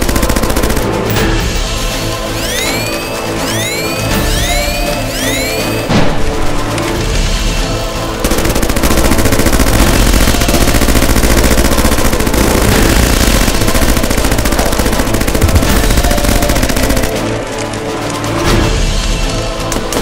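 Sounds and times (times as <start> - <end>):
machine-gun fire: 0.0 - 1.4, 8.2 - 17.6.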